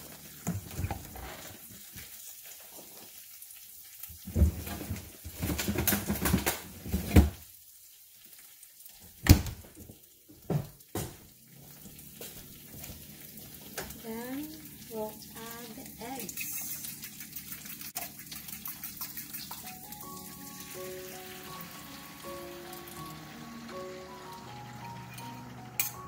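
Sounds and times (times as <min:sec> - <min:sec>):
spinach sizzling in frying pan: 0:00.0 - 0:26.0
dishes and utensils clattering: 0:24.7 - 0:26.0.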